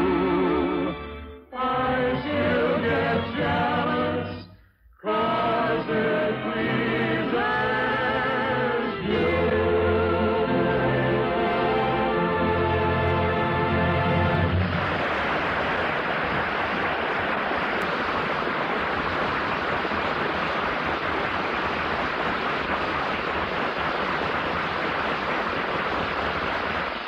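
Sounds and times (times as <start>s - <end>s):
audience applause: 14.2s - 27.0s.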